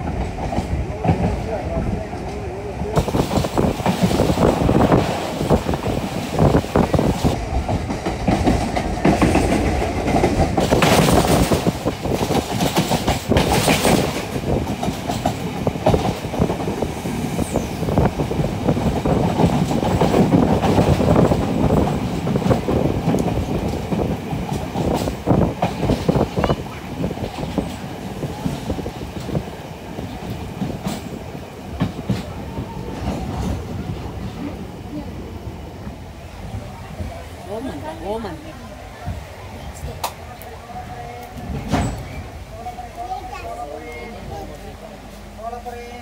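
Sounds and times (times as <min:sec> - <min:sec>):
train wheels clattering over rails: 0:00.0 - 0:35.0, 0:41.0 - 0:42.4
heavy train rumble: 0:00.0 - 0:46.0.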